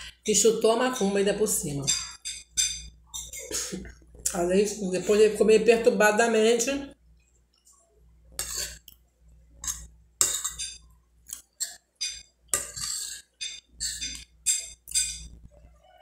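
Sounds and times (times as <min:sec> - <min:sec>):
metal spoon scraping glass plate: 0:08.4 - 0:08.8, 0:09.6 - 0:10.8, 0:11.5 - 0:15.4.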